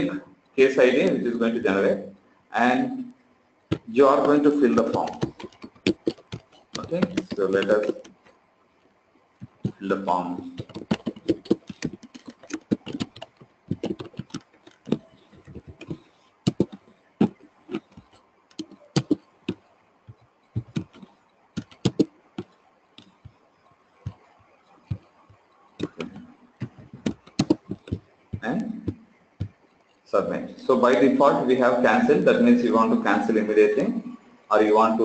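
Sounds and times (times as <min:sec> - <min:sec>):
typing on computer keyboard: 0:03.7 - 0:08.3, 0:09.4 - 0:23.4, 0:24.0 - 0:29.6.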